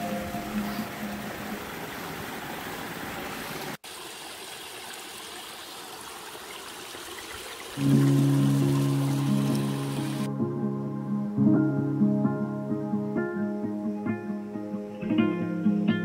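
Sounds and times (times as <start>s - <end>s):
stream splashing over rocks: 0.0s - 10.3s
background music with low notes: 7.8s - 16.0s.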